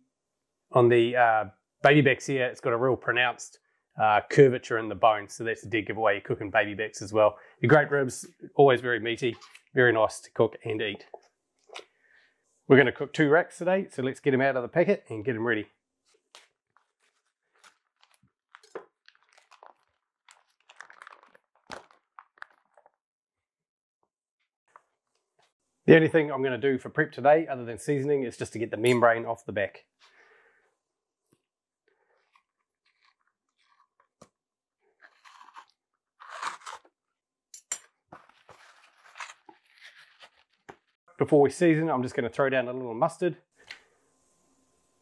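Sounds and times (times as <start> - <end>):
plastic packaging crackling: 16.1 - 23.0
membrane tearing from ribs: 16.3 - 23.0, 35.0 - 36.9.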